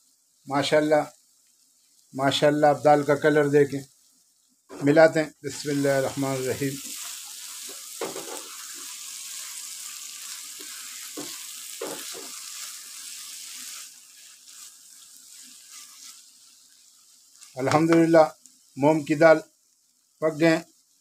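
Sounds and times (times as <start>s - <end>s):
food sizzling in a pan: 0.0s - 21.0s
spatula scraping and knocking pan: 6.8s - 9.0s, 10.6s - 12.6s.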